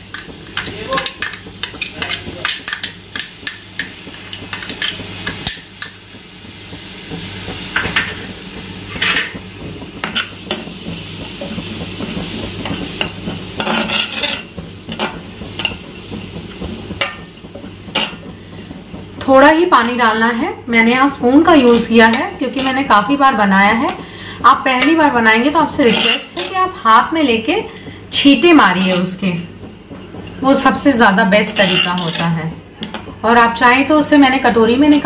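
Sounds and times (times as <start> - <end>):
metal spoon scraping wok: 25.8 - 26.6, 31.5 - 32.4.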